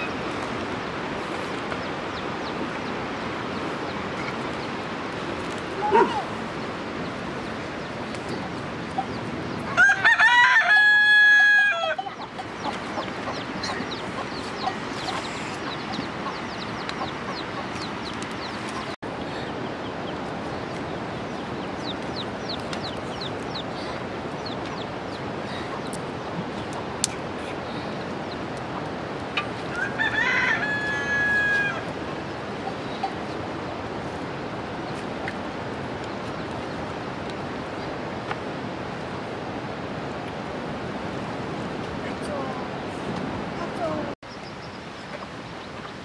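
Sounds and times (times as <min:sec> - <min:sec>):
rooster crowing: 0:09.7 - 0:12.1, 0:29.7 - 0:31.9.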